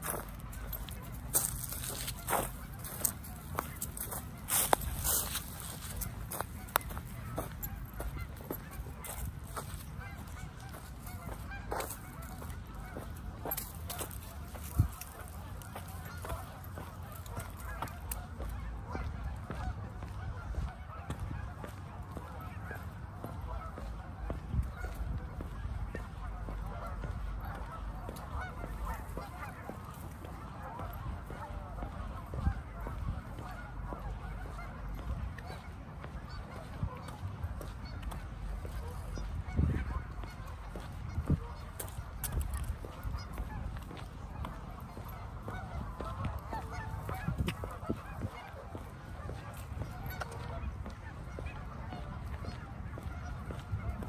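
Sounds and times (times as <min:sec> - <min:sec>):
geese honking: 0:00.0 - 0:54.0.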